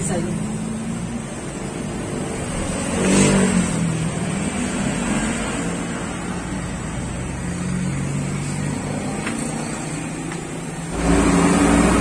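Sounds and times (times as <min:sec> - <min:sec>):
vehicle engine running: 0:05.3 - 0:12.0.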